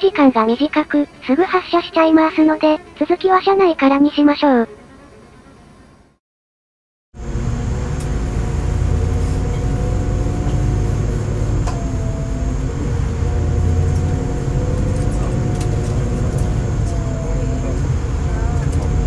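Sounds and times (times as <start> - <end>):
train diesel engine rumble: 7.2 - 19.0.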